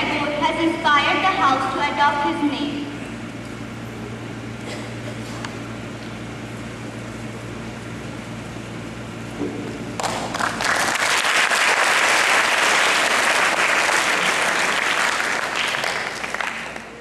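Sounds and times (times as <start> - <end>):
audience applauding: 10.0 - 17.0.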